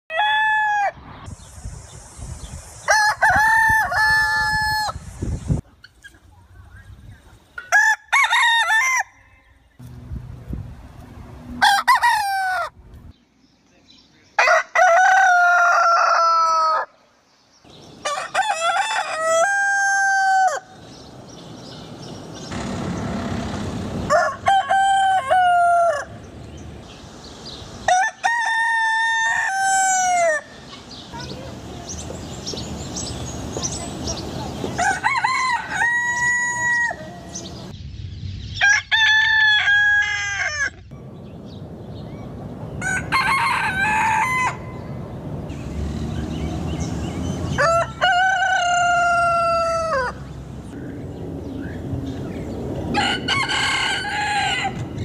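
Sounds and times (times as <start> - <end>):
roosters crowing: 0.1 - 1.1, 2.8 - 5.1, 7.6 - 9.7, 11.5 - 12.8, 14.4 - 17.0, 17.9 - 21.4, 22.0 - 26.6, 27.8 - 30.9, 34.6 - 37.7, 38.6 - 41.0, 42.7 - 50.8, 52.8 - 55.0.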